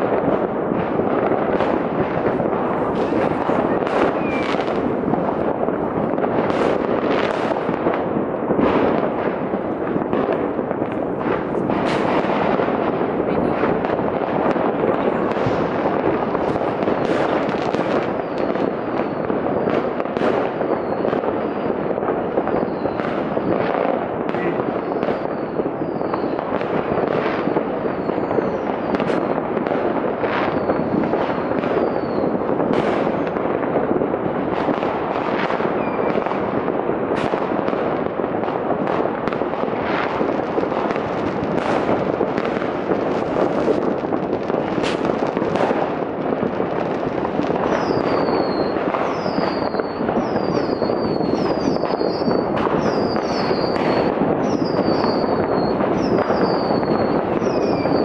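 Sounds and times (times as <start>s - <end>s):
distant firecrackers crackling and banging: 0.0s - 58.0s
short high firework whistles: 3.0s - 5.0s, 17.0s - 21.8s, 22.5s - 23.6s, 24.3s - 29.3s, 30.3s - 33.4s, 35.5s - 36.2s, 47.6s - 58.0s.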